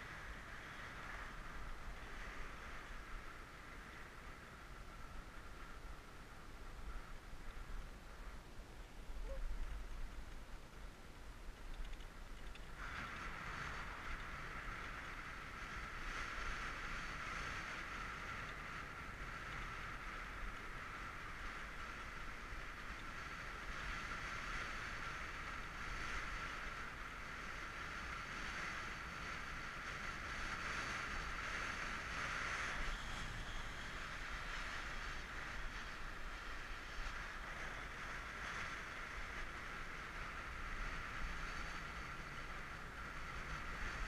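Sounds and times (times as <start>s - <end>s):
bicycle tyres whirring on asphalt: 0.0s - 44.0s
wind across camera: 0.0s - 44.0s.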